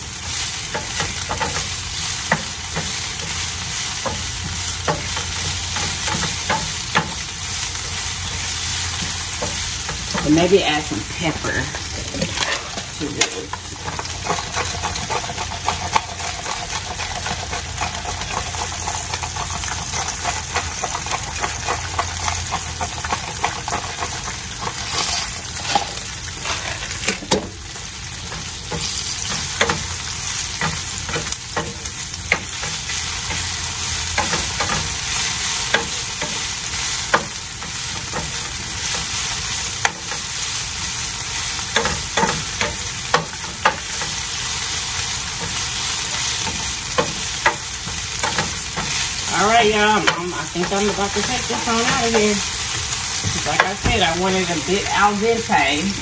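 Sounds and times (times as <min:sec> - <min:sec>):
fish deep-frying in oil: 0:00.0 - 0:56.0
wooden spatula scraping pan: 0:08.3 - 0:27.5.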